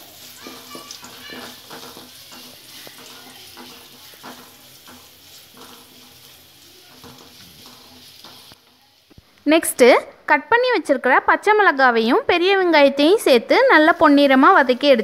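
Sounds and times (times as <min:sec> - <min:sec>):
wooden spatula scraping a pan: 0:00.0 - 0:09.1, 0:13.7 - 0:15.0
garlic sizzling in hot oil: 0:00.0 - 0:15.0.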